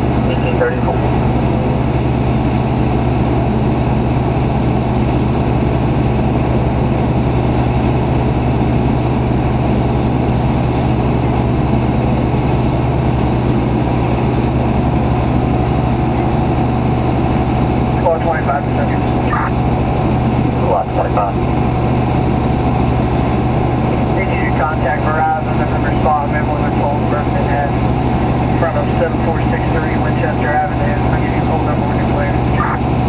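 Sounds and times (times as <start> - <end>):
truck engine idling: 0.0 - 33.0.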